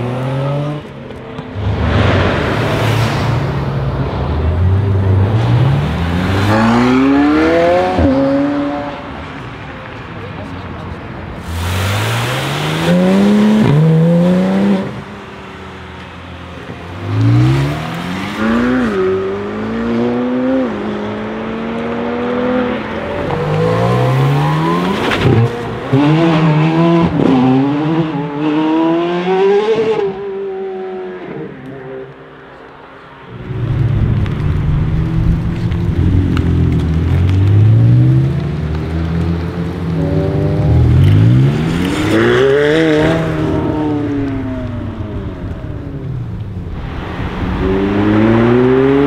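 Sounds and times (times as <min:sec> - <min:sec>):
sports car accelerating hard: 0:17.0 - 0:31.5, 0:47.0 - 0:49.0
loud low rumble: 0:33.3 - 0:37.1.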